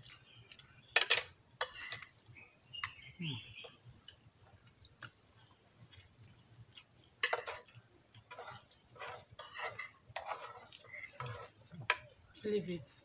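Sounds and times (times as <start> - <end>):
eating noises: 3.1 - 10.0.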